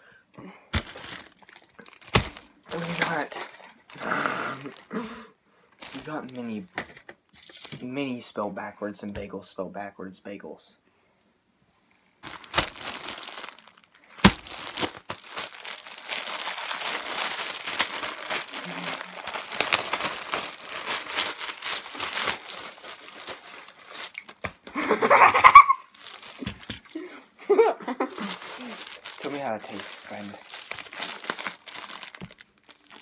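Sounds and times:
plastic bag crinkling: 0.7s - 5.1s, 5.8s - 7.8s, 12.2s - 24.7s, 25.3s - 27.0s, 28.1s - 33.0s.

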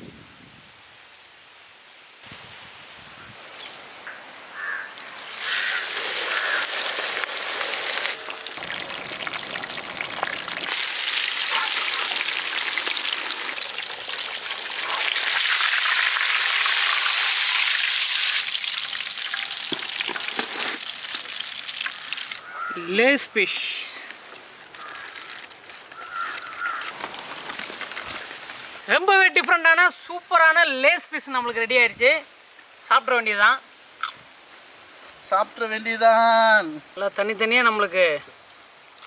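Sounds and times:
fish sizzling in hot oil: 4.6s - 22.4s.

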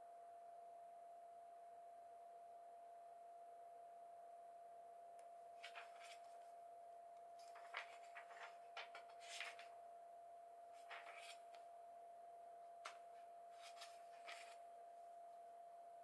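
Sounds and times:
paperback pages turning: 5.6s - 6.4s, 7.4s - 9.7s, 10.8s - 11.6s, 13.6s - 14.6s.

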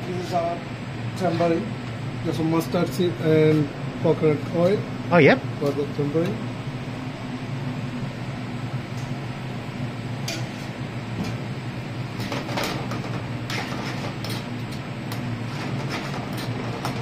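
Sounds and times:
steady low hum: 0.0s - 17.0s
metal spoon scraping a frying pan: 13.5s - 14.5s, 15.4s - 17.0s.

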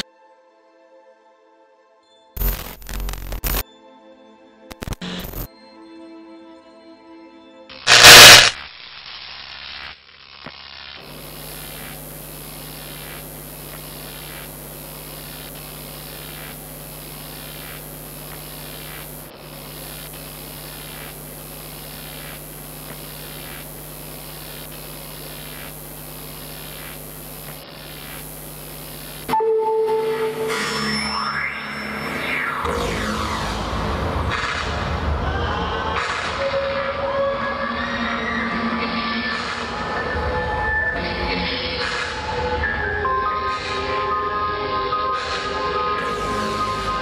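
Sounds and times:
loud sound effect burst: 7.8s - 8.6s, 31.8s - 35.3s
electrical hum with hiss: 7.8s - 29.4s, 46.0s - 47.0s.

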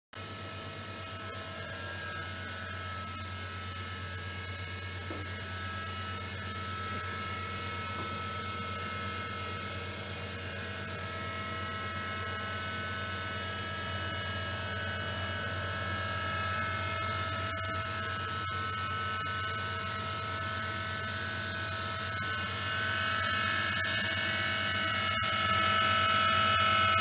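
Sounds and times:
milling machine spindle whine: 0.2s - 27.0s.

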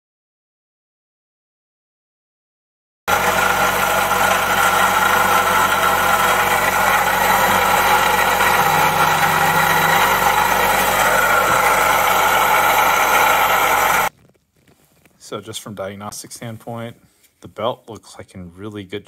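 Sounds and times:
car engine running: 3.1s - 14.1s
failing water pump noise: 3.1s - 14.1s.

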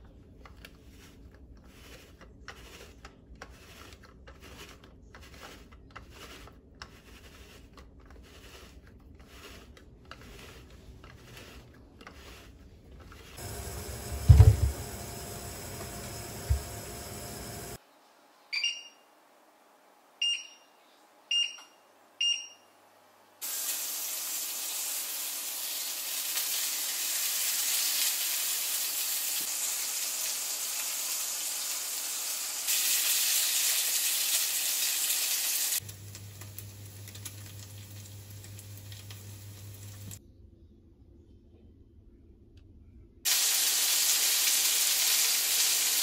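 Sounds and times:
meat sizzling in a frying pan: 23.4s - 40.2s, 43.3s - 46.0s.

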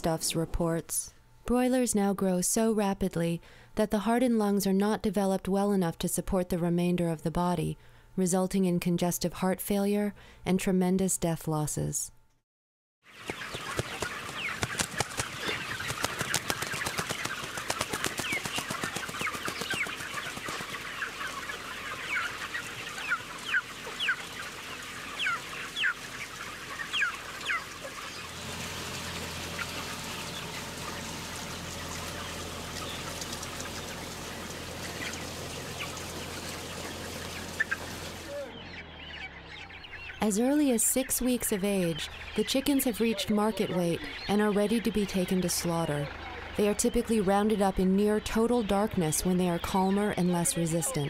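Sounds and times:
chicks peeping: 13.1s - 51.0s
low steady hum: 17.1s - 51.0s.

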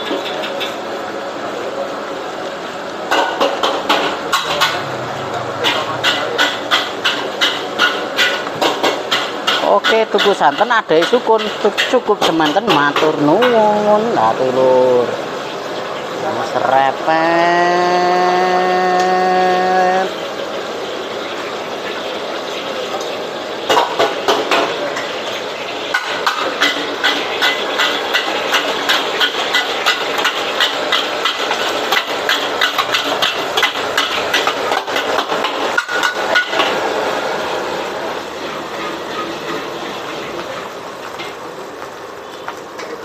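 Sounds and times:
gas burner hissing: 0.0s - 43.0s
metal spatula clanking on wok: 3.1s - 13.8s, 25.9s - 36.8s.

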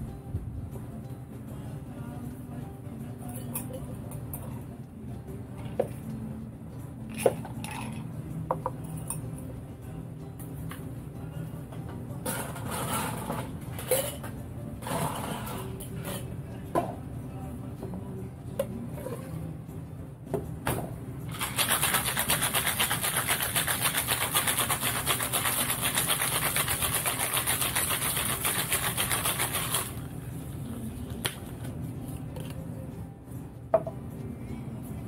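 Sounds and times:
cocktail shaker rattling: 7.1s - 8.2s, 21.3s - 30.2s.

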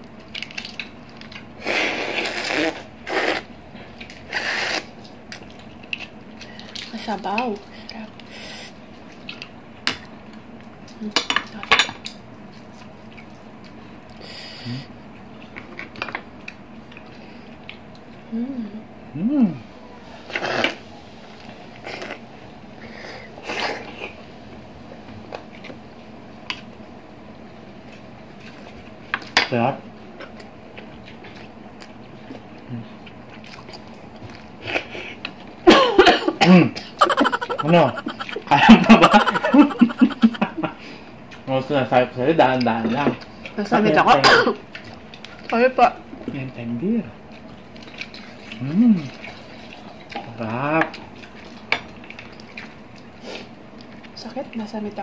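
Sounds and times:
mouth chewing: 37.0s - 40.5s.

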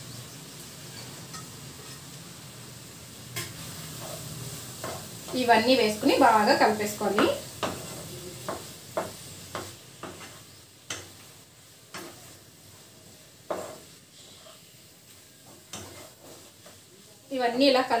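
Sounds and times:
faint frying sizzle: 0.0s - 18.0s
spatula stirring in frying pan: 0.8s - 2.3s, 3.2s - 18.0s
spatula knocking against pan: 7.1s - 11.2s.

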